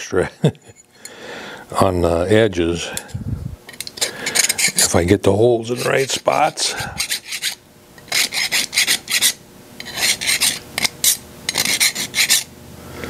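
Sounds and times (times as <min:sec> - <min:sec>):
hand file scraping metal: 0:03.7 - 0:12.5.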